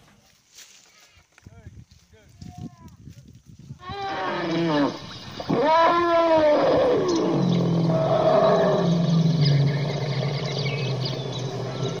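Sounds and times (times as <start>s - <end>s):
elephant rumbling roar: 3.8s - 12.0s.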